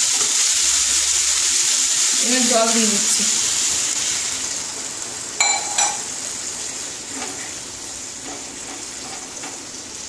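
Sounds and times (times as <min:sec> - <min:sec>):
curry sizzling in a pan: 0:00.0 - 0:10.0
ringing clinks against a pan: 0:05.4 - 0:06.0
spatula stirring vegetables: 0:05.8 - 0:09.8.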